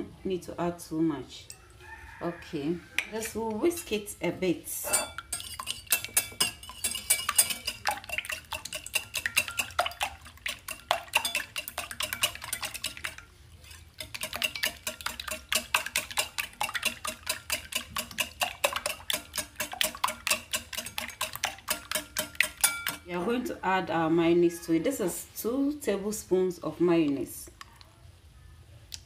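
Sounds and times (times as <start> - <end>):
whisk clinking against bowl: 4.9 - 23.0.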